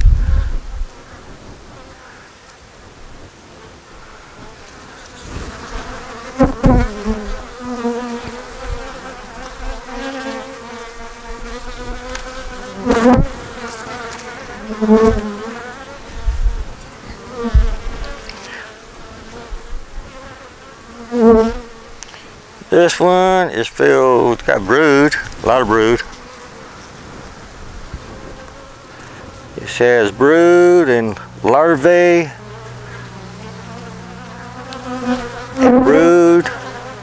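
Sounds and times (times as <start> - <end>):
honeybees buzzing: 0.0 - 37.0
bee flying past loud buzz: 3.6 - 22.7, 24.3 - 29.6, 32.0 - 37.0
hive tool knocking frames: 6.4 - 7.1.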